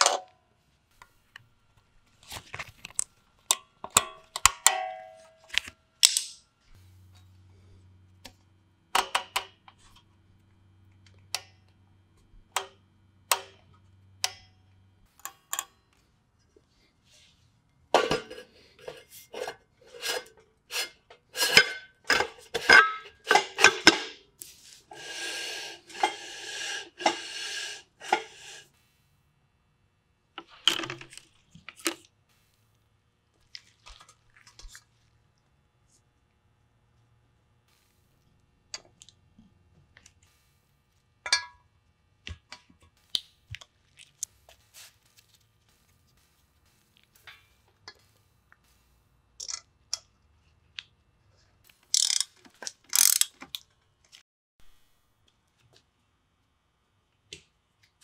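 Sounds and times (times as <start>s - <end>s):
metal-on-metal clanks: 18.0s - 20.4s, 21.4s - 24.2s, 41.3s - 41.6s.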